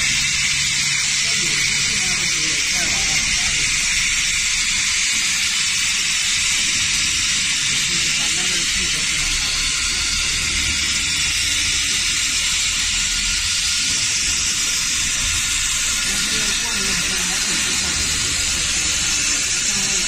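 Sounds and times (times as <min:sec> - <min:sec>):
laser welding hiss: 0:00.0 - 0:20.0.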